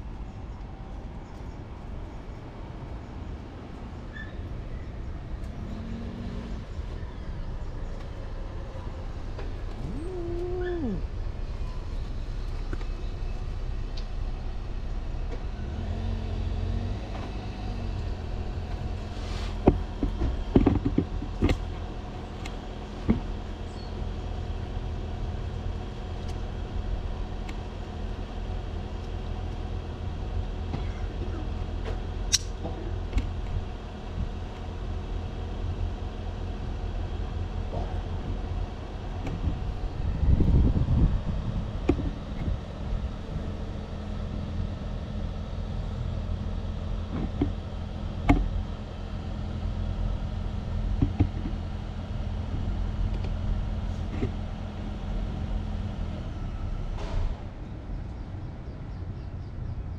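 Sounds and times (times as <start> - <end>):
steady low rumble: 0.0 - 59.9
cat meowing: 9.8 - 11.0.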